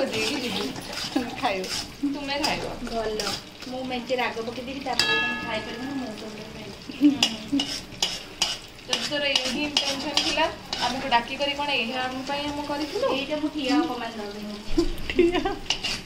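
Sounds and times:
metal spatula scraping a pan: 0.0s - 3.5s, 7.2s - 11.7s, 15.6s - 16.0s
paste sizzling: 0.0s - 16.0s
spatula striking pan ringing: 4.9s - 9.1s.

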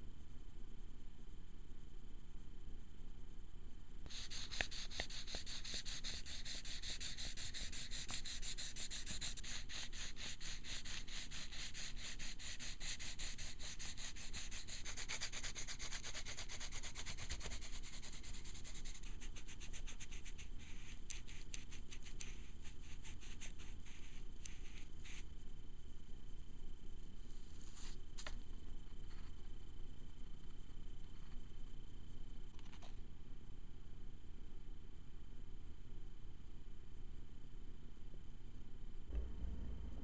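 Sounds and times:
eraser rubbing strokes: 4.1s - 25.2s
pencil scratching on paper: 4.1s - 25.2s.

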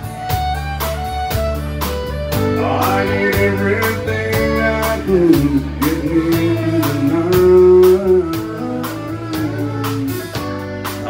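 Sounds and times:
steady drum beat: 0.0s - 11.0s
strummed acoustic guitar: 0.0s - 11.0s
man singing: 2.5s - 10.4s.

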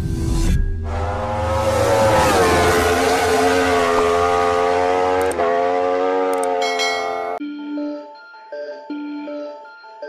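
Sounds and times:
race car engine at high revs: 0.8s - 7.4s.

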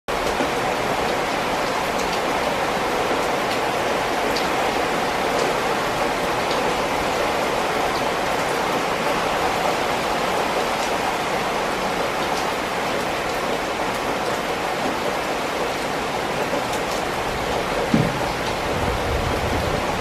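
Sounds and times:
rain on concrete: 0.1s - 20.0s
brief thump: 17.9s - 18.4s.

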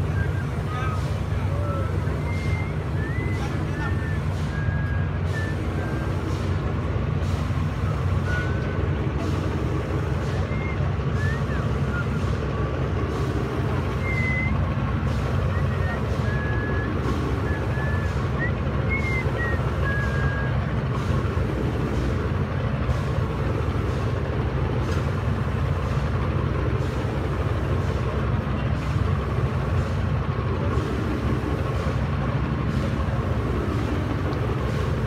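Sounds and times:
machinery low rumble: 0.0s - 35.0s
short high whistle tones: 1.6s - 6.2s, 8.2s - 8.6s, 10.2s - 12.3s, 13.9s - 14.6s, 15.5s - 20.6s.

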